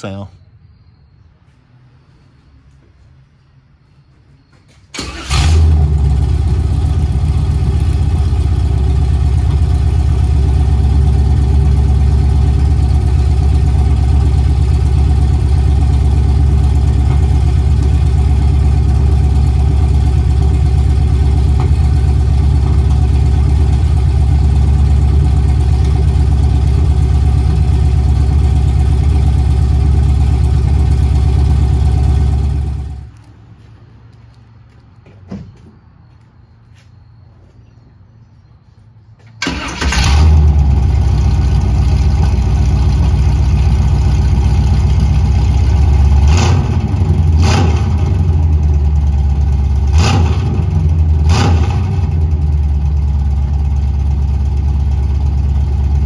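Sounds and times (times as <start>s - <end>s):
engine starting: 4.9s - 5.9s, 39.4s - 40.5s
car engine idling with deep exhaust: 5.6s - 33.1s, 40.1s - 56.0s.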